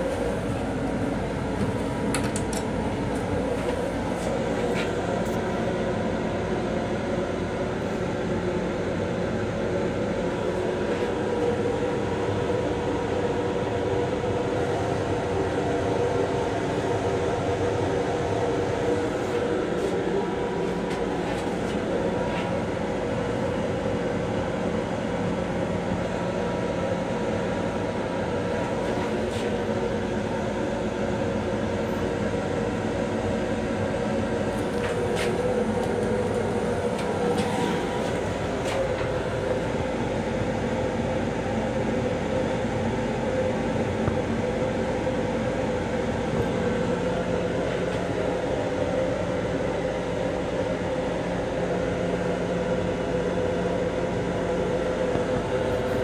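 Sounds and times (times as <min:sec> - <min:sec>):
multi-tone electric hum: 0:00.0 - 0:56.0
railcar interior rumble: 0:00.0 - 0:56.0.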